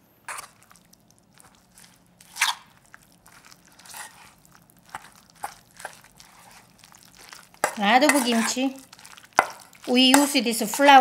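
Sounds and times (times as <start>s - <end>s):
metal spoon scraping steel bowl: 7.6s - 8.8s.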